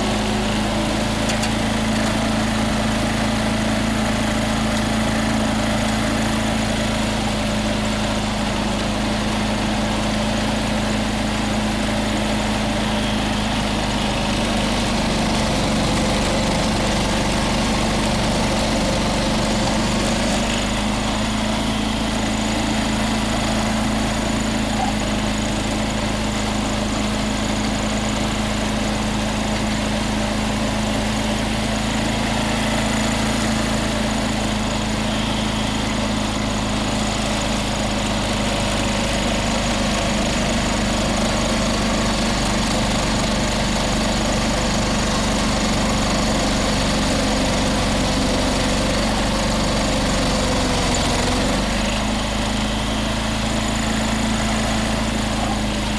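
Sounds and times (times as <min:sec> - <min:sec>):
lawn tractor engine under load: 0:00.0 - 0:55.9
snow thrower throwing snow: 0:00.0 - 0:55.9.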